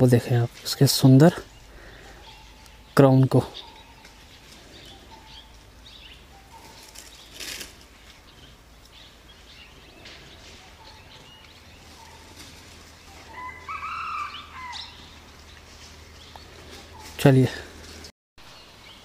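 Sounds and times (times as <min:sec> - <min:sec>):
birds chirping faintly: 0:00.0 - 0:19.0
rustling: 0:06.4 - 0:09.1, 0:09.9 - 0:13.7.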